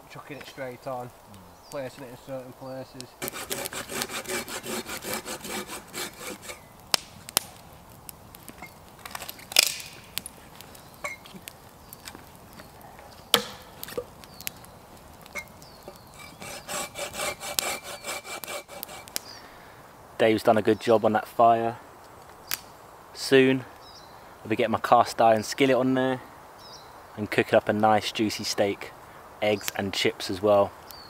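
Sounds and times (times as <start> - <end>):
wood snapping and cracking: 3.0 - 19.3, 22.0 - 22.7
hand saw cutting wood: 3.2 - 6.6, 15.9 - 19.2.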